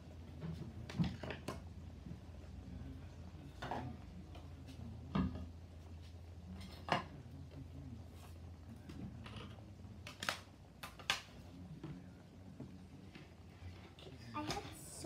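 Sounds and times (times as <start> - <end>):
low steady hum: 0.0 - 15.0
objects knocking and clattering: 0.4 - 1.7.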